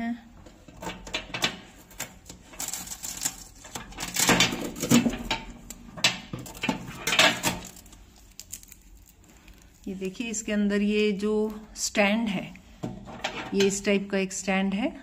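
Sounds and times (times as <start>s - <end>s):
packing tape rustling: 1.7s - 10.1s.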